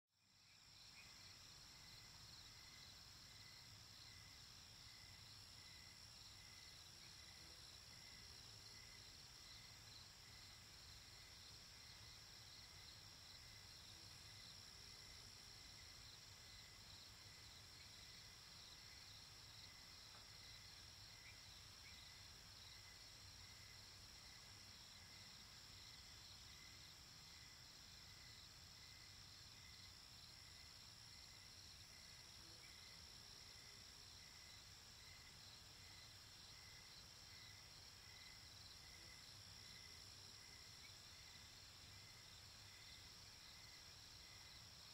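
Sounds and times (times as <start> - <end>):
faint high-pitched hiss and whine: 0.1 - 44.9.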